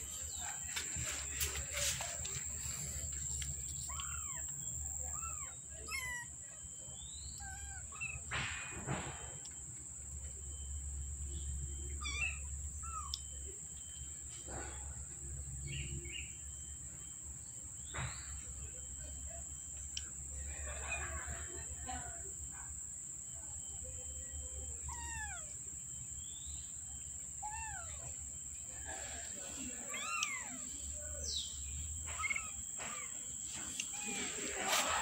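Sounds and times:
low background hum: 0:00.0 - 0:35.0
kittens mewing: 0:03.0 - 0:06.4, 0:24.8 - 0:25.6, 0:27.4 - 0:28.2, 0:29.6 - 0:31.0, 0:32.0 - 0:35.0.

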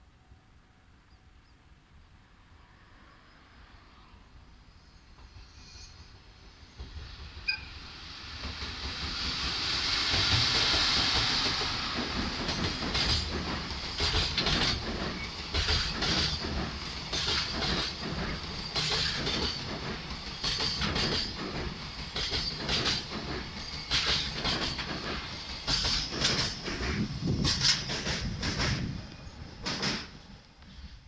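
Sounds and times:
electric locomotive passing: 0:00.0 - 0:31.0
train wheels clacking over rail joints: 0:08.3 - 0:30.3.

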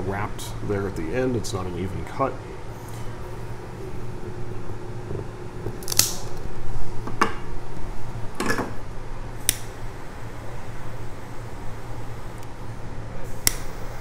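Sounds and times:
sharp snaps and clicks: 0:05.6 - 0:06.4, 0:09.4 - 0:09.7, 0:13.4 - 0:13.8
cigar cutter snipping: 0:05.8 - 0:06.4, 0:13.4 - 0:13.7
lighter ignition click: 0:05.8 - 0:06.4, 0:09.4 - 0:09.7, 0:13.3 - 0:13.9.

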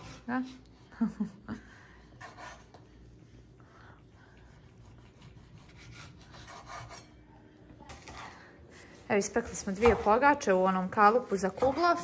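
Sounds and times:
knives slicing meat: 0:04.9 - 0:07.0.

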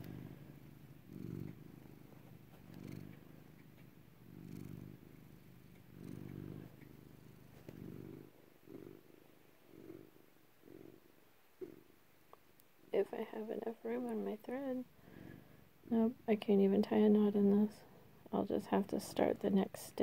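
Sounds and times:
cat purring: 0:00.0 - 0:20.0.

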